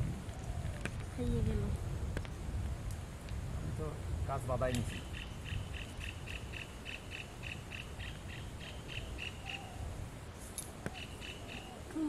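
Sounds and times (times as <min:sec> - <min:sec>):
steady low rumble: 0:00.0 - 0:10.4
animal chirping call: 0:04.9 - 0:09.8, 0:10.9 - 0:11.9.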